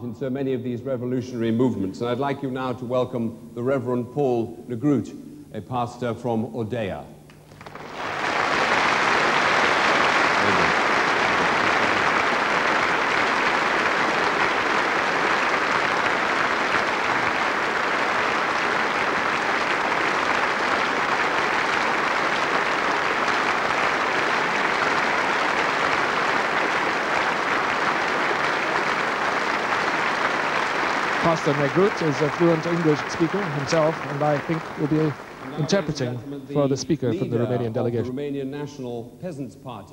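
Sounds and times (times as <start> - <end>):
audience applauding: 7.3 - 36.3.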